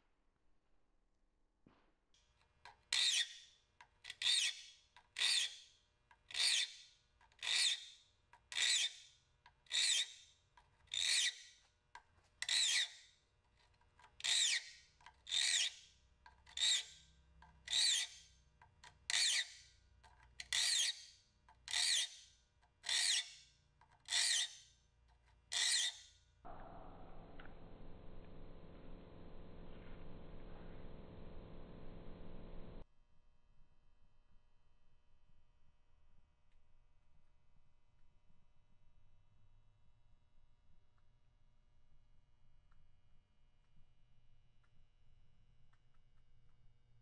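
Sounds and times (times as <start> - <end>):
file rasping on saw teeth: 4.1 - 5.6, 6.3 - 7.9, 8.5 - 9.1, 9.7 - 11.5, 12.4 - 13.0, 13.6 - 26.1.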